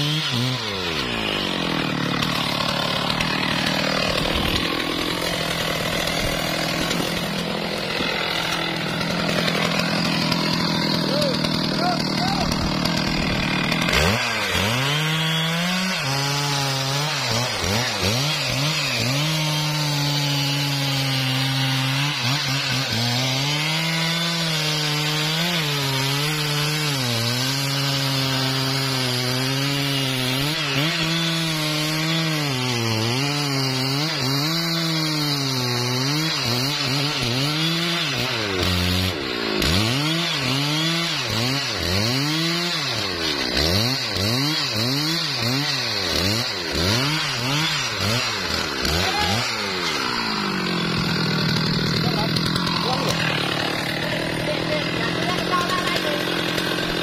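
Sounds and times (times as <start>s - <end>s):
chainsaw cutting tree trunk: 0.0s - 57.0s.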